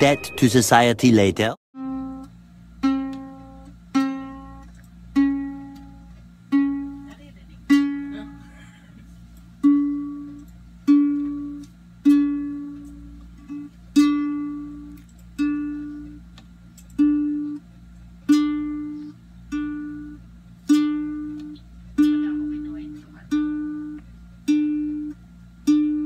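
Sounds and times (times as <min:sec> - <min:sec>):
ukulele string plucked: 0:01.8 - 0:07.1, 0:19.5 - 0:22.6.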